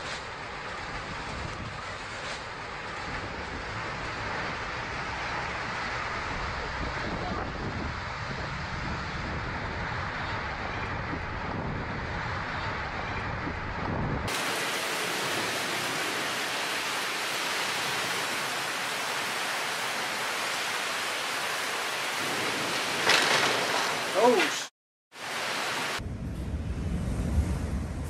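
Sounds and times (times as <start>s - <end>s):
wind buffeting microphone: 3.0s - 20.7s
heavy rain pouring: 14.3s - 28.0s.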